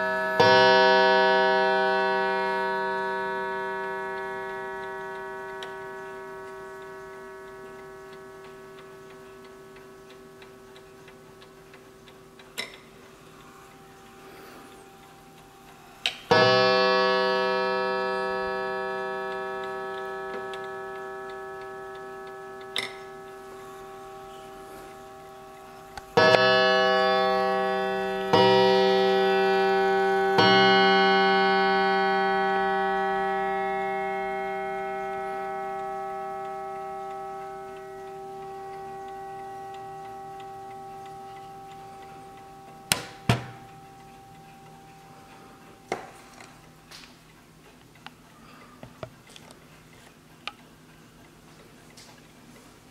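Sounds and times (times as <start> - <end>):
clock gong striking: 0.0 - 9.0, 16.3 - 46.1
clock ticking: 0.0 - 52.9
sharp clicks: 42.9 - 43.8.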